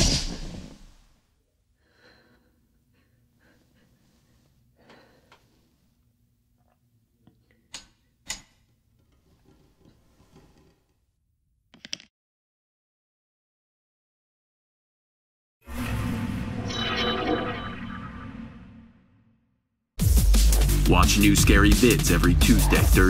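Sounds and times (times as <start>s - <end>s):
faint uneven breathing: 1.8s - 6.0s.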